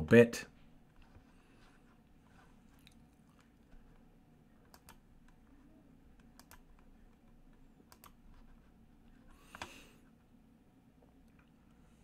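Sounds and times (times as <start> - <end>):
faint computer clicks: 6.2 - 7.3, 7.9 - 8.2.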